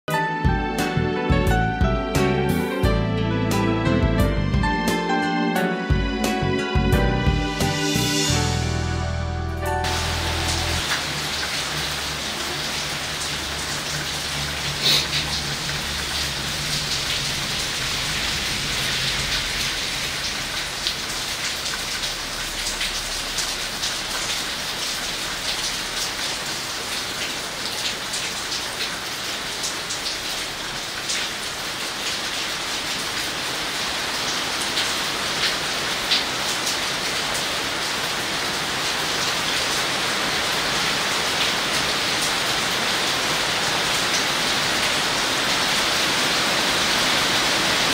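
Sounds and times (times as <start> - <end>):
rain falling on grass and leaves: 9.8 - 47.9.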